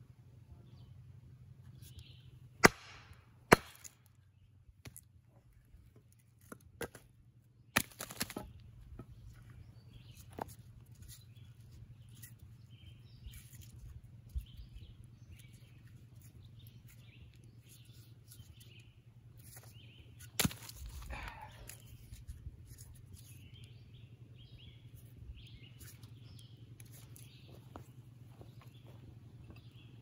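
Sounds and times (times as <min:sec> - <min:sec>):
birds chirping softly: 0:00.0 - 0:02.6, 0:04.0 - 0:30.0
low hum: 0:07.0 - 0:30.0.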